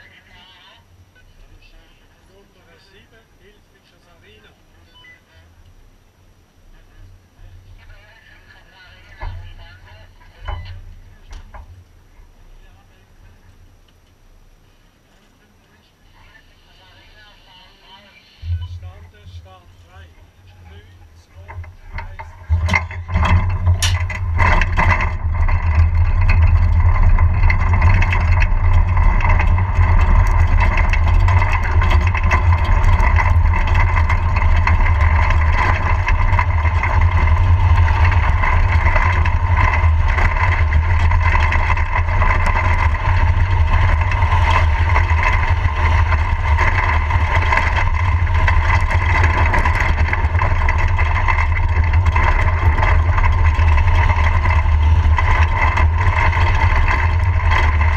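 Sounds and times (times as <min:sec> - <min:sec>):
wheel whine: 0:00.0 - 0:57.9
wheels rumbling on asphalt: 0:00.0 - 0:57.9
cart clicks and knocks: 0:18.9 - 0:57.9.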